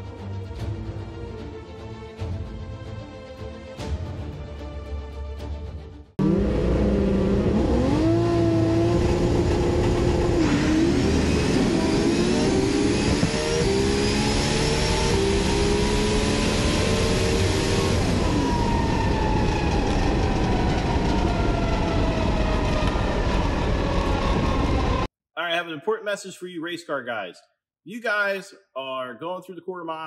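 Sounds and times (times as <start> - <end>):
race car engine running: 6.2 - 18.7
rising whine: 6.2 - 25.1.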